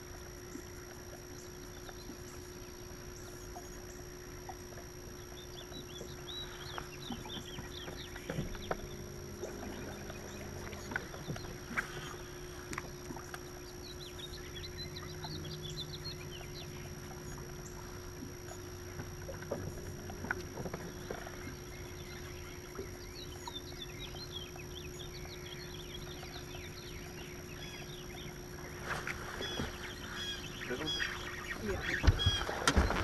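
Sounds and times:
boat motor hum and whine: 0:00.0 - 0:33.0
small birds chirping: 0:01.3 - 0:19.2, 0:20.5 - 0:33.0.

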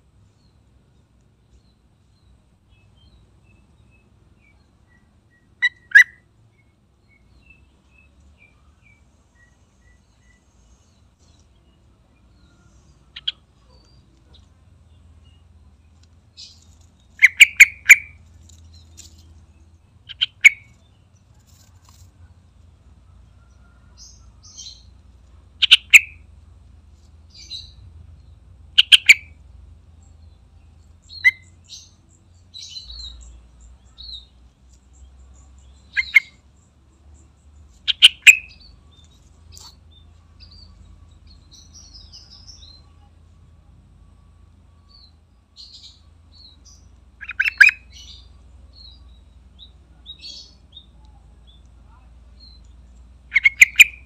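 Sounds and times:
bulbul calling: 0:04.4 - 0:06.3, 0:12.4 - 0:15.4, 0:16.4 - 0:19.2, 0:20.0 - 0:21.0, 0:25.6 - 0:26.3, 0:28.7 - 0:29.4, 0:31.0 - 0:34.3, 0:34.9 - 0:36.5, 0:37.7 - 0:43.0, 0:45.6 - 0:51.0, 0:53.2 - 0:54.0
faint high chirps: 0:27.2 - 0:54.0.

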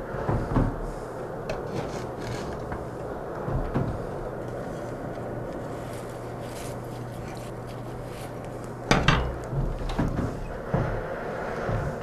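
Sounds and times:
iron tools clanking: 0:08.9 - 0:10.6.

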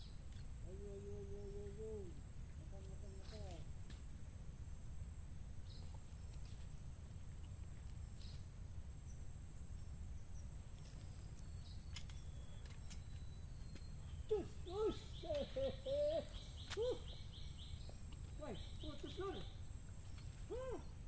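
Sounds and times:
faint clicks: 0:11.9 - 0:13.9.

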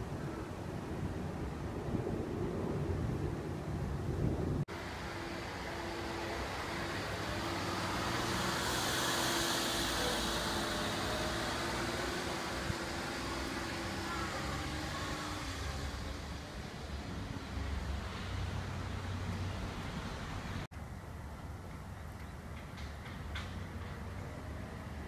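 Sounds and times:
steady engine hum: 0:00.0 - 0:25.0
vehicle passing close by: 0:04.3 - 0:20.7.

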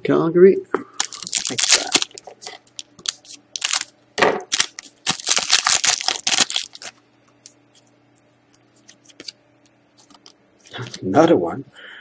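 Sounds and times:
foil wrapper crinkling: 0:01.0 - 0:03.9, 0:04.5 - 0:07.6
scissors cutting foil: 0:04.5 - 0:06.9
faint clicks of cards handled: 0:07.3 - 0:11.0.

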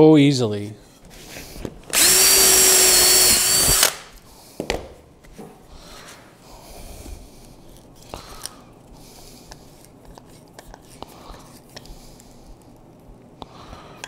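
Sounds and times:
cordless drill whining: 0:01.9 - 0:04.2.

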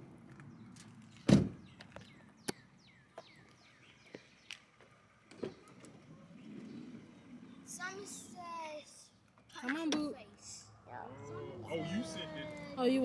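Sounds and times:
car door thump: 0:01.2 - 0:01.6.

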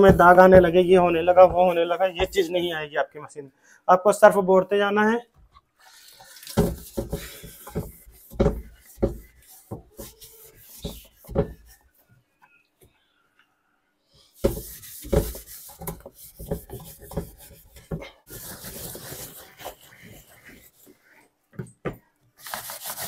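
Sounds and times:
hand scrubbing soapy plastic: 0:00.0 - 0:02.8, 0:06.1 - 0:12.0, 0:14.4 - 0:21.2.

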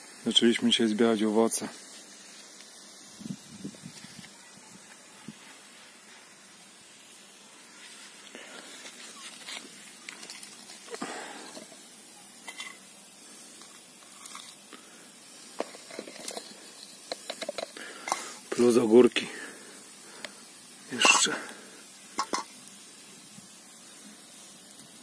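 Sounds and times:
faint hiss: 0:00.0 - 0:25.0.

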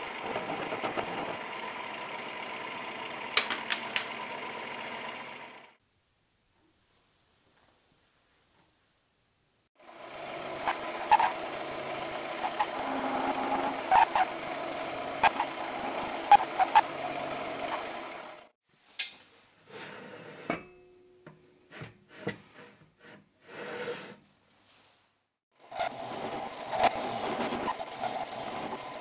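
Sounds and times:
metallic knocks and clanks: 0:03.4 - 0:04.3
milling machine cutting steel: 0:09.9 - 0:18.5.

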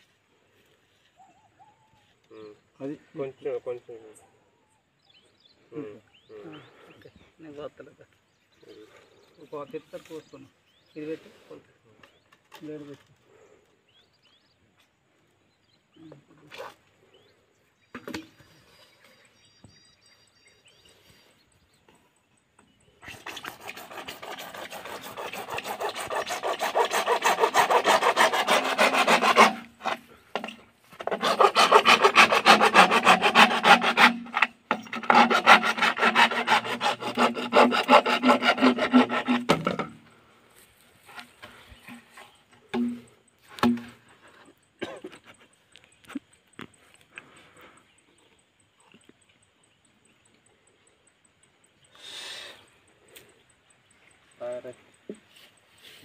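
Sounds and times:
hand saw cutting plastic pipe: 0:23.0 - 0:40.0, 0:41.4 - 0:43.9.

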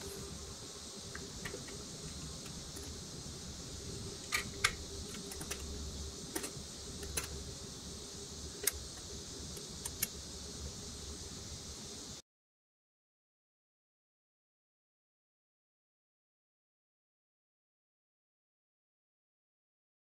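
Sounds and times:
steady hiss: 0:00.0 - 0:12.2.

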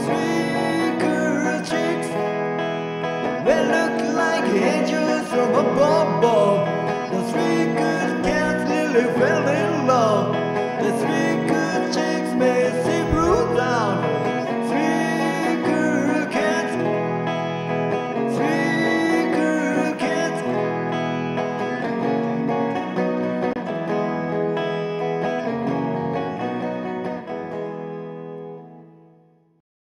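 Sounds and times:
band backing: 0:00.0 - 0:27.9
electric guitar rock lead: 0:00.0 - 0:29.2.

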